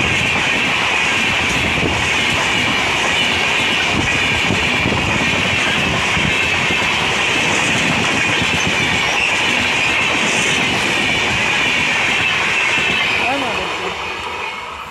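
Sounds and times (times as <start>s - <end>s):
train coaches rolling past: 0.0s - 14.9s.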